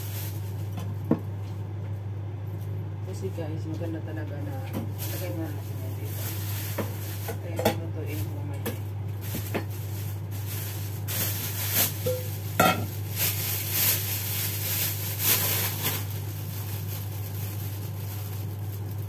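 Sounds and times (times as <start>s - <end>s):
plastic bag crinkling: 0.0s - 0.8s, 4.9s - 7.5s, 8.1s - 19.0s
steady low hum: 0.0s - 19.0s.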